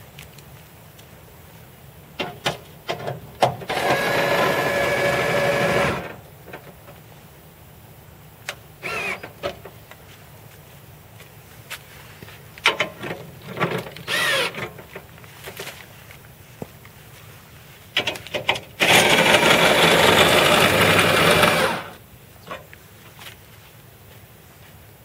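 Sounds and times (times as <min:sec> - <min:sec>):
small electric motor whirring: 0:03.7 - 0:06.1, 0:08.8 - 0:09.3, 0:14.0 - 0:14.6, 0:18.8 - 0:22.0.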